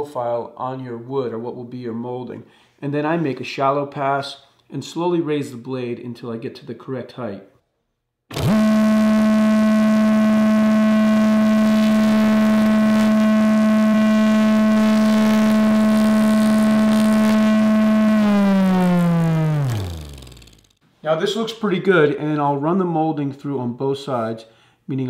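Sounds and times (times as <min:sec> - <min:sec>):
saw spinning down: 0:08.3 - 0:20.8
table saw cutting wood: 0:08.3 - 0:20.8.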